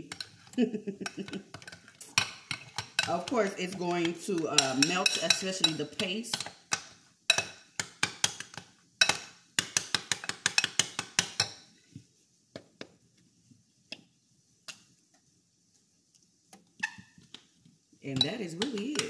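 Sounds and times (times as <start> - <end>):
metal spoon clinking in glass bowl: 4.6 - 6.5.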